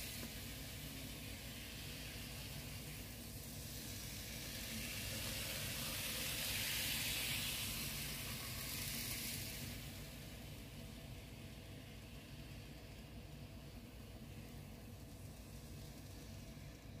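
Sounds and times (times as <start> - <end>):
model train running past: 0.0 - 13.5.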